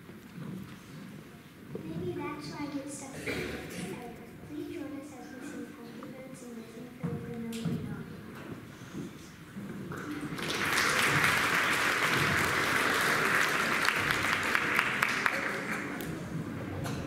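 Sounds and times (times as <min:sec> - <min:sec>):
audience applause: 0:09.9 - 0:16.3.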